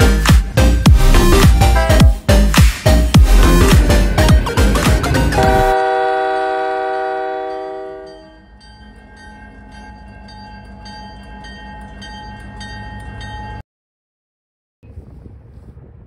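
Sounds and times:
locomotive engine rumble: 0.0s - 13.6s
locomotive bell ringing: 4.1s - 13.6s
locomotive air horn: 5.3s - 8.3s.

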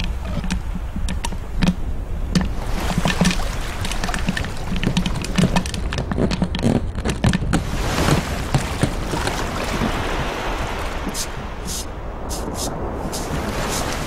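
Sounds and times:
irregular clicks and knocks: 0.0s - 7.6s
wind: 0.0s - 14.0s
surf rushing: 7.6s - 14.0s.

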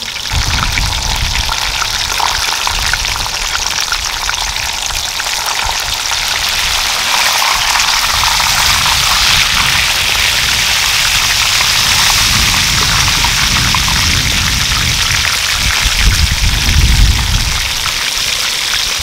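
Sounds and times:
oil sizzling and bubbling: 0.0s - 19.0s
low rumble: 0.2s - 5.2s, 7.9s - 18.0s.

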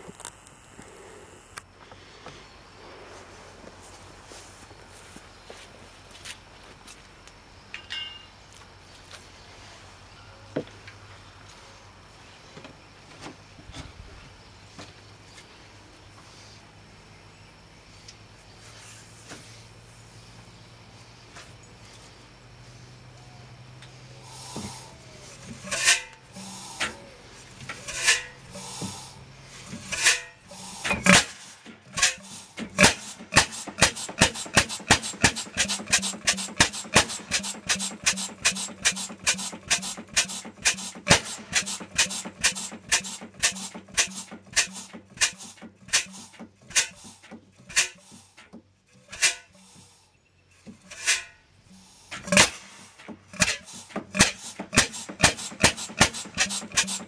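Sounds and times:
stationary engine exhaust beats: 18.0s - 48.5s, 51.6s - 57.0s.

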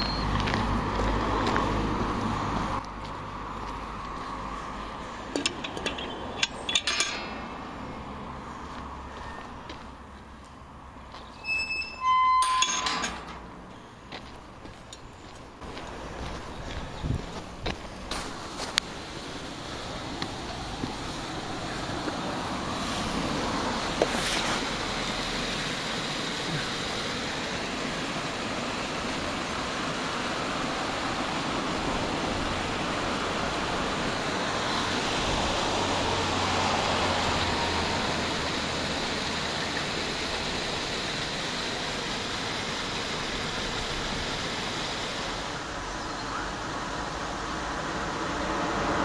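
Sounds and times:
water rushing over a weir: 18.1s - 49.0s.

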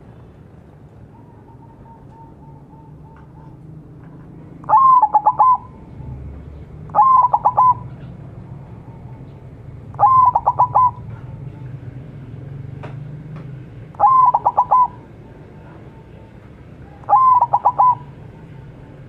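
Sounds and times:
dove cooing: 1.0s - 4.0s, 4.6s - 11.5s, 14.0s - 19.0s.

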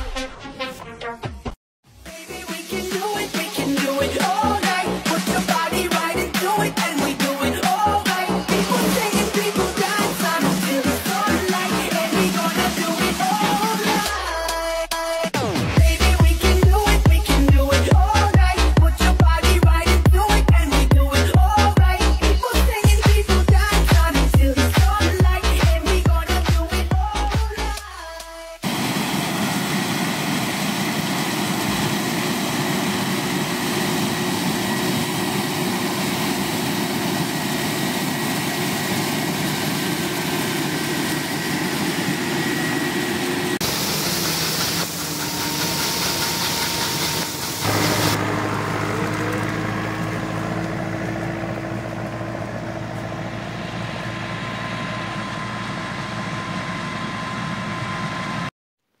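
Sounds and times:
combine harvester engine hum: 28.6s - 58.5s
corn kernels pouring into trailer: 43.6s - 50.8s.

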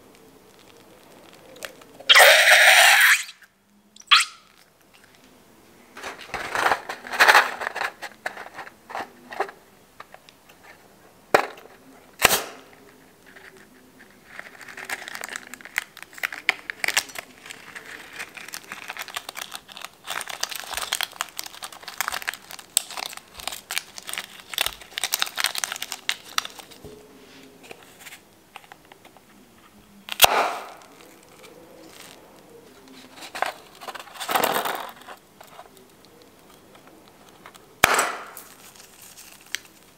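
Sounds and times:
crinkly crackling of rubber: 0.0s - 3.5s, 4.1s - 39.9s
balloon rubber snapping: 30.2s - 30.8s, 37.8s - 38.4s.

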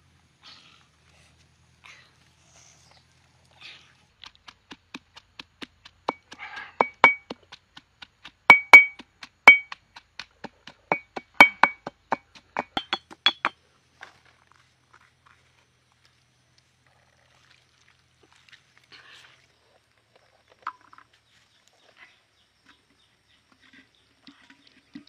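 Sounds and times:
pestle pounding in stone mortar: 4.2s - 13.5s.

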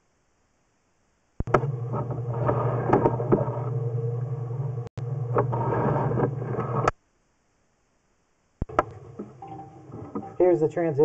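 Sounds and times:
low mechanical hum: 0.3s - 7.5s.

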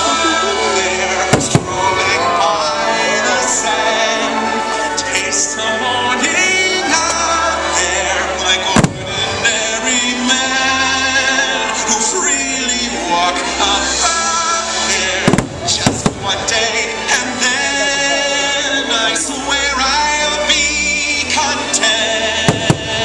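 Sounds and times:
orchestral music with singing: 0.0s - 23.0s
firework bangs: 1.2s - 2.4s, 8.7s - 9.6s, 15.2s - 16.8s, 22.4s - 23.0s.

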